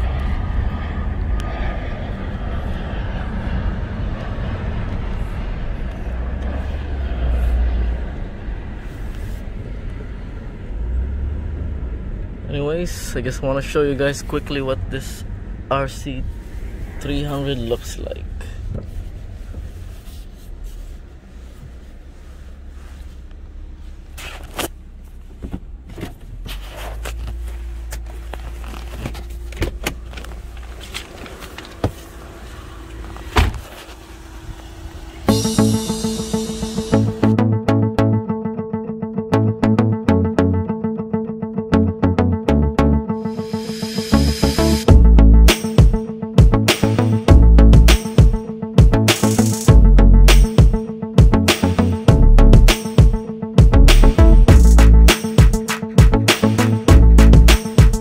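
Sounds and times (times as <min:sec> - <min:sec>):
steady low hum: 0:00.0 - 0:11.0
car cabin road and engine rumble: 0:00.0 - 0:37.4.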